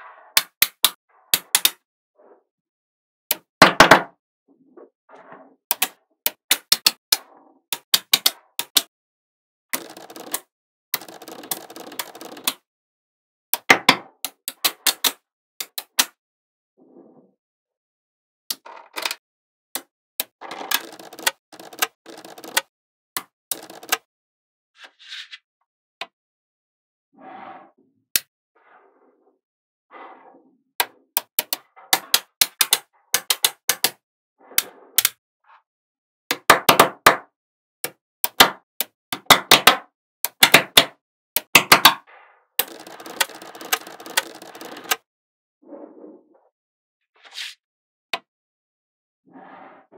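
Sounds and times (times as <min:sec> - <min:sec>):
magnetic balls snapping together: 0:00.4 - 0:01.8, 0:31.2 - 0:34.0, 0:37.8 - 0:42.0
balls rattling against each other: 0:09.8 - 0:12.6, 0:20.4 - 0:22.7, 0:23.5 - 0:24.0, 0:42.6 - 0:45.0.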